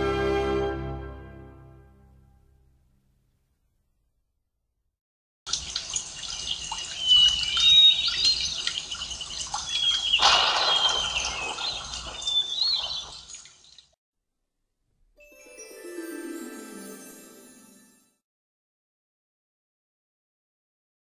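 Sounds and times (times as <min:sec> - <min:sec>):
birds chirping and singing: 0:06.2 - 0:13.8.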